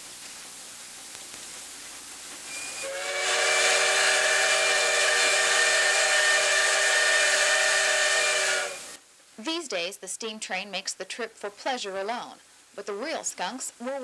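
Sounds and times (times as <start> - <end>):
steam hissing: 0.0 - 9.0
steam locomotive whistle: 2.5 - 9.0.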